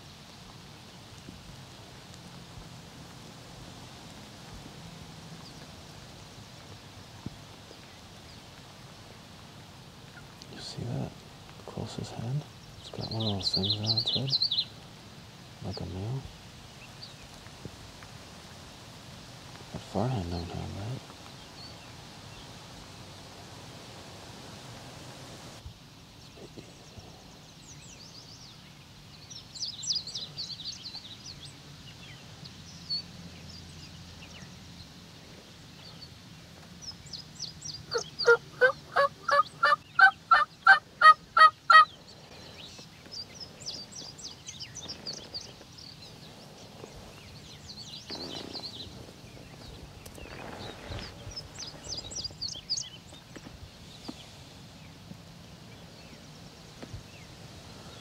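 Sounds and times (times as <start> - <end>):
faint songbird chirps: 10.1 - 14.8, 26.1 - 58.0
wild turkey yelping: 37.9 - 41.9.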